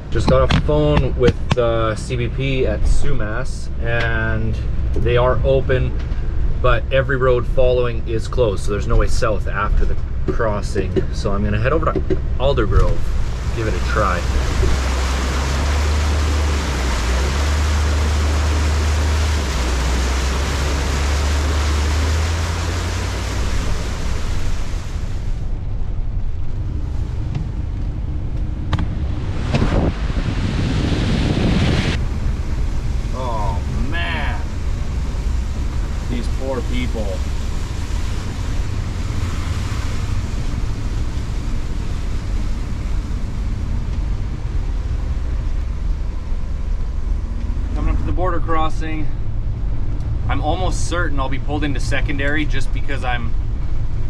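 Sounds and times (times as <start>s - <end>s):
deep vehicle rumble: 0.0s - 54.0s
tyres spraying through water: 12.4s - 25.5s, 29.0s - 49.3s.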